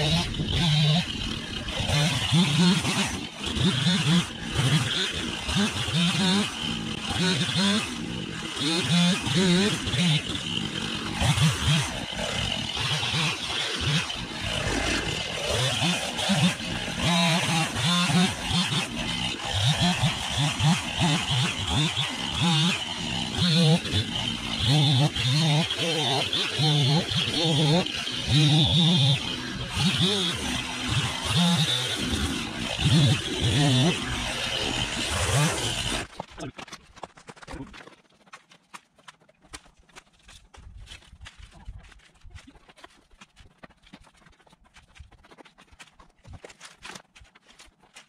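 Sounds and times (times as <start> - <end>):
chainsaw idling: 0.0 - 36.3.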